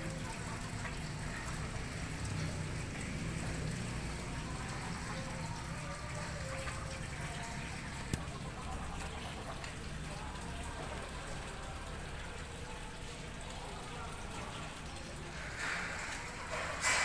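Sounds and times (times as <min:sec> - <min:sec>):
steady rain hiss: 0:15.2 - 0:17.0.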